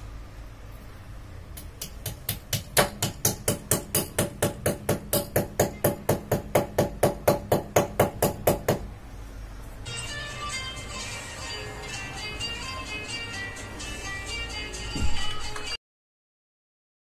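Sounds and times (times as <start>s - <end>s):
sharp knocks: 1.6s - 8.8s
background music: 9.8s - 15.8s.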